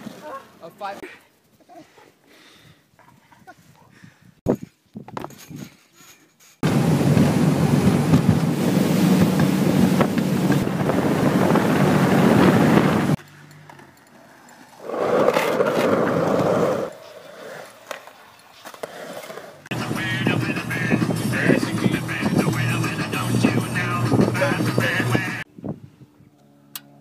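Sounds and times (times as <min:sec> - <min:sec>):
wind and water rush: 0:06.6 - 0:13.2, 0:19.7 - 0:25.4
speedboat engine drone: 0:06.6 - 0:14.2, 0:19.7 - 0:25.4
rough noise: 0:06.6 - 0:25.4.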